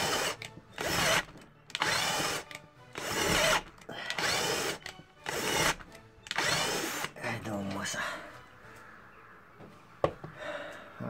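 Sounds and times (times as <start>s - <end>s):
cordless drill whining into wood: 0.0s - 7.2s.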